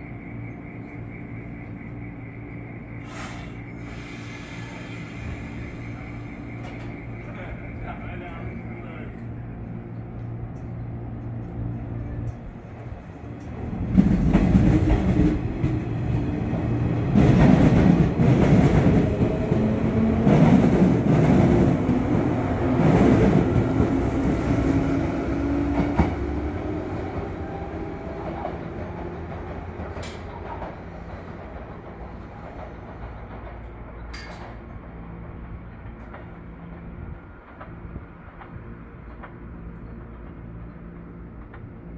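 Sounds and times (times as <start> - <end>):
electric train hum: 0.0 - 41.9
wheels clicking over rail joints: 28.2 - 41.9.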